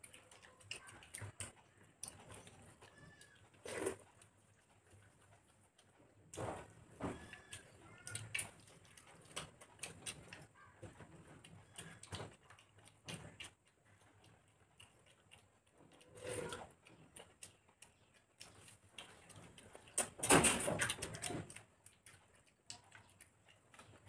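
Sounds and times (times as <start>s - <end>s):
wet mouth clicks and lip smacks: 7.3s - 10.5s, 11.4s - 24.0s.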